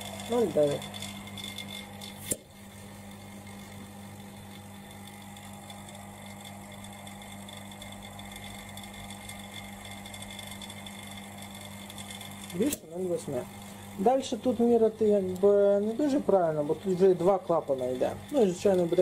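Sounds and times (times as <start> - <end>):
small motor humming: 0.0 - 19.0.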